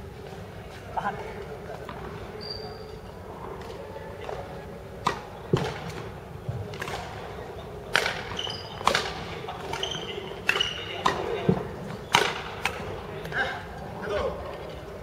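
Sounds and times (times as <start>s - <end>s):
shoes squeaking on court floor: 1.8s - 3.2s, 8.2s - 9.0s, 9.6s - 11.0s
racket striking shuttlecock: 7.9s - 11.3s.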